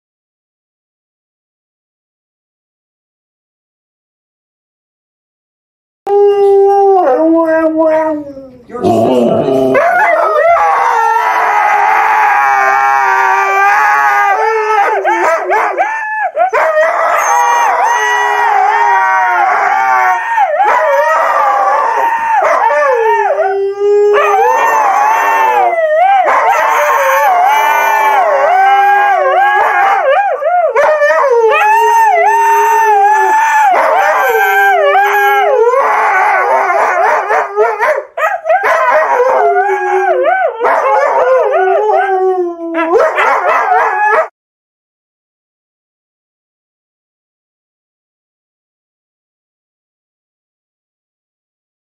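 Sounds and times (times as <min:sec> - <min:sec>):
huskies howling: 0:06.1 - 0:44.3.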